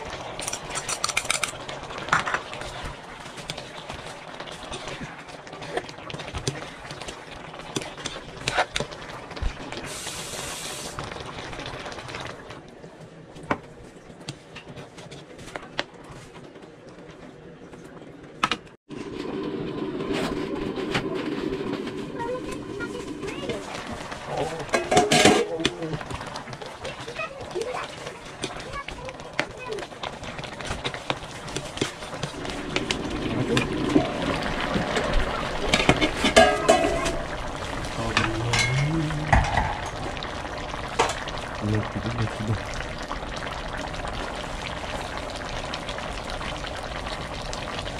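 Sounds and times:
stew simmering: 0.0s - 47.9s
metal utensils clinking on a wok: 24.7s - 25.5s, 35.8s - 37.2s, 38.5s - 39.7s.

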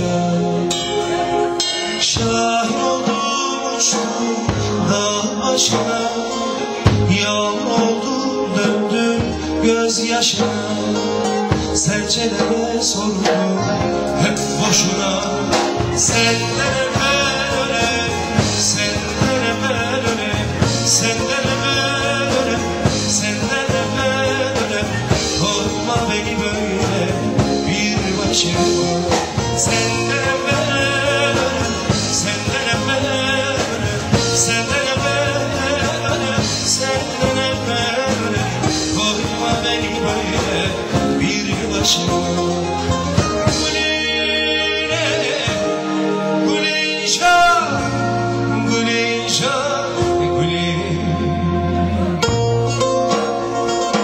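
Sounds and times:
live band playing folk music: 0.0s - 54.0s
person singing: 0.0s - 54.0s.

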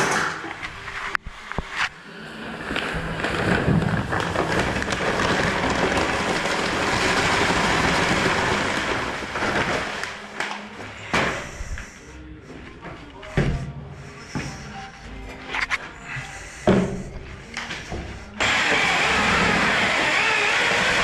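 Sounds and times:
dry mortar pouring from a bag: 2.3s - 12.0s.

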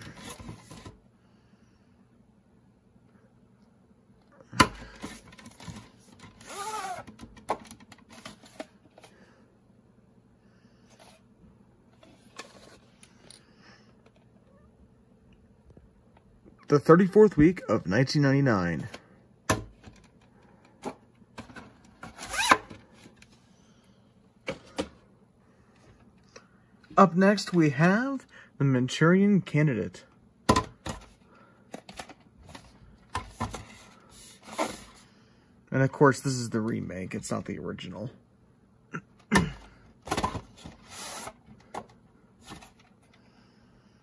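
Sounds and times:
cassette scraping out of sleeve: 5.0s - 7.2s, 22.0s - 22.8s, 40.1s - 41.5s
plastic rubbing squeak: 6.4s - 7.1s.

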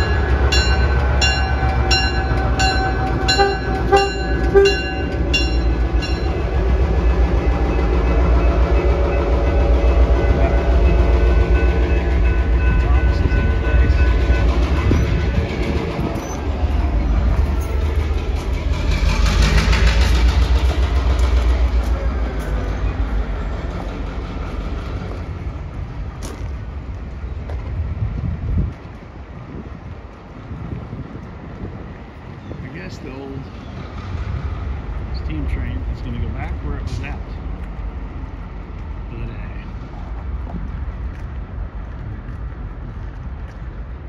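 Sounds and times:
level-crossing bell dinging: 0.0s - 6.5s, 9.9s - 14.6s
locomotive rumbling: 0.0s - 44.0s.

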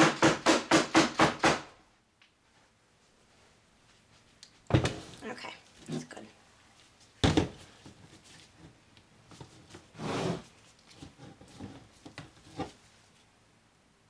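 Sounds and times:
spatula scraping plastic pitcher: 9.4s - 12.8s.

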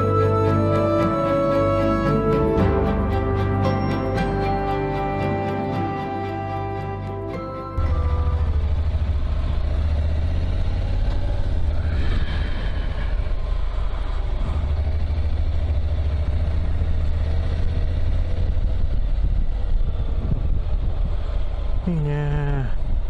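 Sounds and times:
motorcycle engine drone: 0.0s - 23.0s
wind rumble on microphone: 8.2s - 23.0s.

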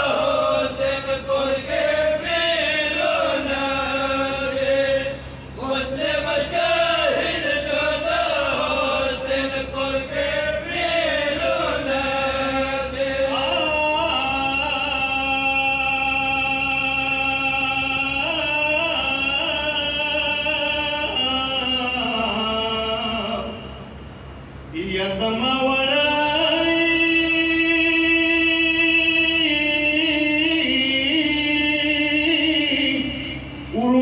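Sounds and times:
men chanting a lament: 0.0s - 23.8s.

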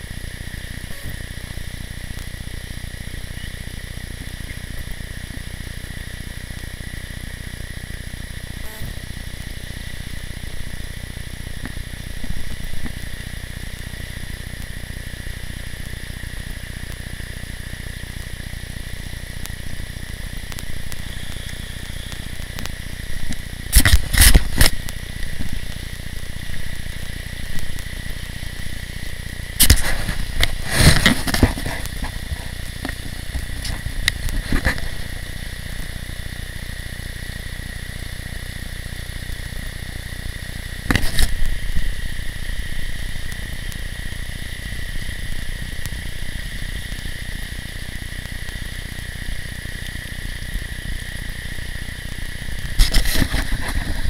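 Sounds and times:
crackles and knocks: 8.6s - 17.1s, 18.0s - 36.2s, 39.2s - 54.0s.

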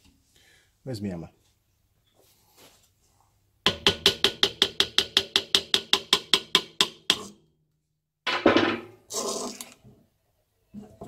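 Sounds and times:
hammer tapping on metal: 3.7s - 7.3s.

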